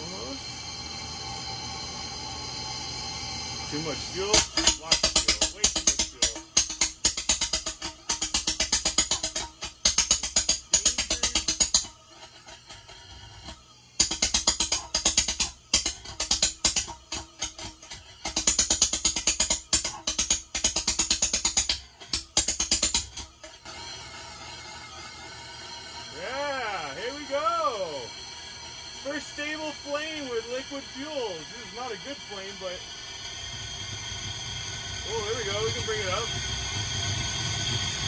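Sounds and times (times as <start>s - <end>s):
burner steady hiss: 0.0s - 38.0s
burner flame pulsing pops: 2.2s - 38.0s.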